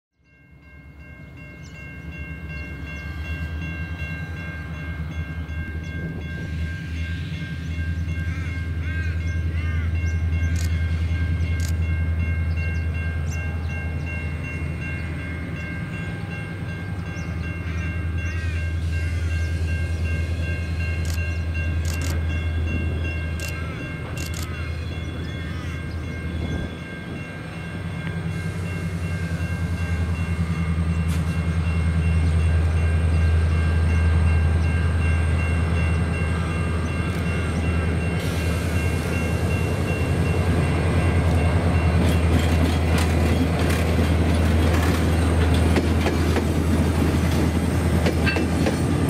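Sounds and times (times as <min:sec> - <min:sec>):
diesel locomotive engines droning: 0:00.2 - 0:49.0.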